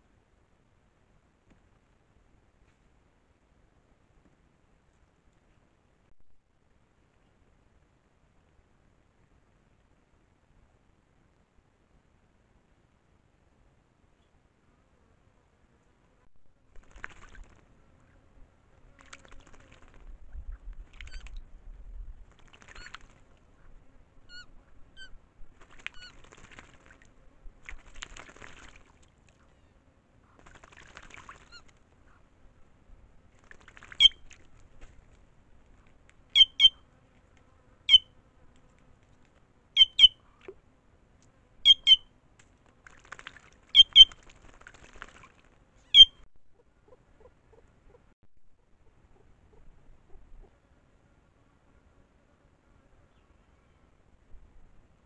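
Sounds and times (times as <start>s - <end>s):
birds splashing in water: 16.7s - 17.8s, 18.9s - 20.2s, 20.8s - 21.4s, 22.2s - 23.6s, 25.0s - 29.7s, 30.3s - 32.3s, 33.2s - 35.8s, 41.7s - 46.1s
sharp double-note bird calls: 36.4s - 36.8s, 37.9s - 38.1s, 39.8s - 40.2s, 41.6s - 42.1s, 43.8s - 44.1s, 45.9s - 46.2s.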